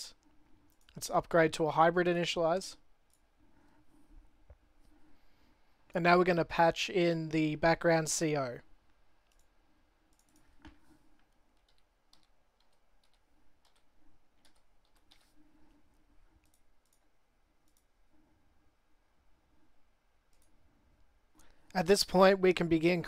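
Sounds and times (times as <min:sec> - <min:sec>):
computer mouse clicks: 0:00.2 - 0:01.0, 0:03.0 - 0:03.3, 0:09.2 - 0:17.9, 0:20.3 - 0:20.6
keyboard keys clicking: 0:10.1 - 0:15.3.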